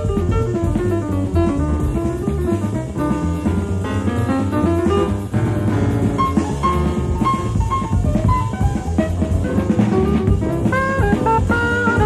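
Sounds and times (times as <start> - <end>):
drum kit playing: 0.0 - 12.0
alto saxophone melody: 7.2 - 12.0.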